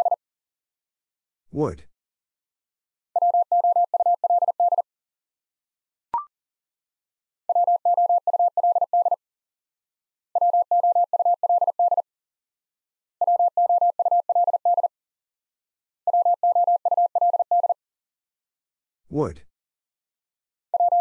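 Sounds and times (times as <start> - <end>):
morse code beeps: 3.2 - 4.8, 7.5 - 9.2, 10.4 - 12.0, 13.2 - 14.9, 16.1 - 17.8, 20.8 - 21.0.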